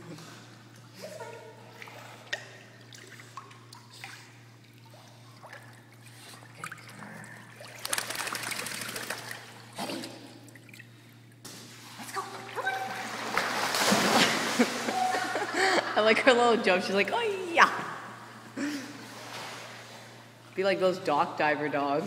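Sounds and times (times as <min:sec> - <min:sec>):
pool water lapping and dripping: 0:00.0 - 0:22.0
steady low hum: 0:00.0 - 0:22.0
water splashing: 0:01.6 - 0:11.0, 0:12.4 - 0:15.5.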